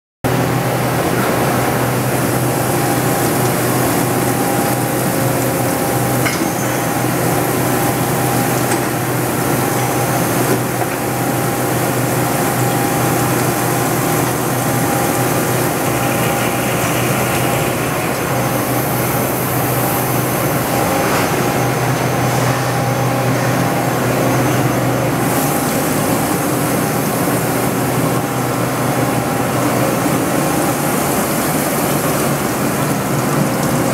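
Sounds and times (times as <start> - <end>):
milling machine hum: 0.3 - 33.9
coolant spraying hiss: 25.2 - 33.9.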